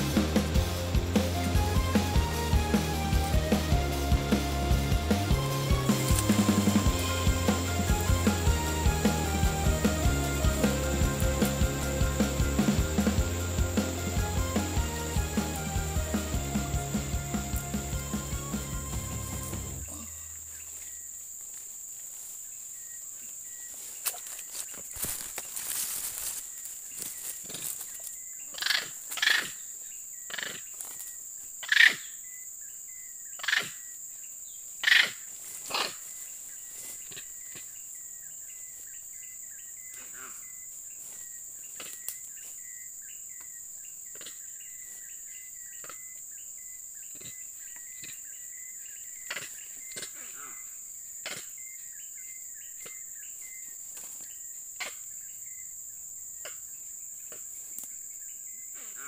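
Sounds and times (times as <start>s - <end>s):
high insect drone: 0.0s - 59.0s
monkey high calls: 34.8s - 36.0s.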